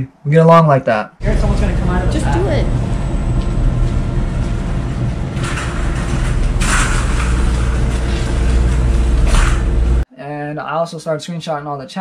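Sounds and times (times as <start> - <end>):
cart rattling: 1.2 - 10.0
cart wheels rumbling on hard floor: 1.3 - 10.0.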